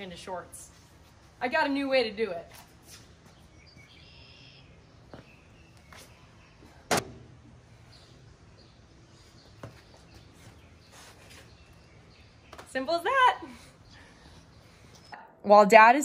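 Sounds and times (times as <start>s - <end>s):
sharp thump: 6.9s - 7.3s.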